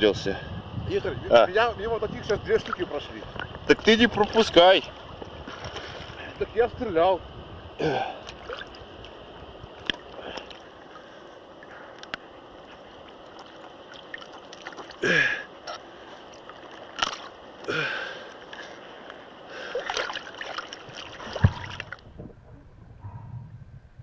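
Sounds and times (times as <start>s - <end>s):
water splashing and sloshing: 2.2s - 6.4s, 8.1s - 23.2s
muffled underwater sound: 21.4s - 24.0s.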